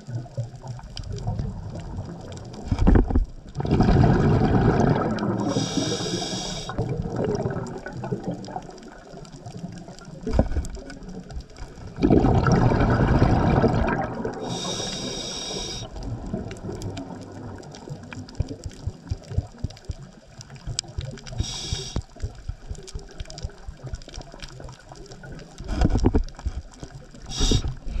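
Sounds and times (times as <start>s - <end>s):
exhaled bubbles gushing: 0.0s - 28.0s
regulator hissing inhalations: 5.4s - 6.8s, 14.4s - 16.0s, 21.3s - 22.1s, 27.3s - 28.0s.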